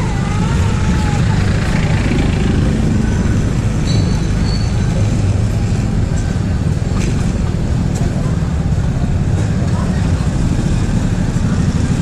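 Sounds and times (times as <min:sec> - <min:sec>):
scooter engine running: 0:00.0 - 0:04.5
traffic noise: 0:00.0 - 0:12.0.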